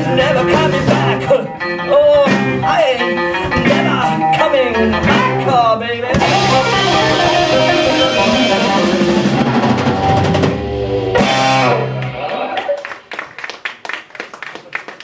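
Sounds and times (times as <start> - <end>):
rock band playing: 0.0 - 13.1
people clapping: 11.8 - 15.0.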